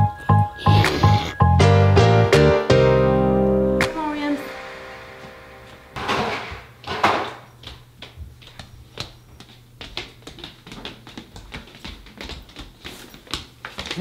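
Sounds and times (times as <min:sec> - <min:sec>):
bare feet tapping on hardwood floor: 0:06.0 - 0:14.0.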